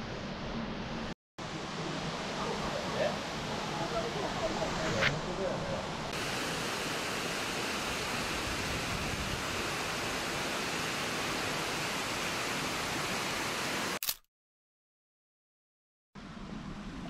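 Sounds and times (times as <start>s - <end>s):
waterfall rushing: 6.2s - 14.0s.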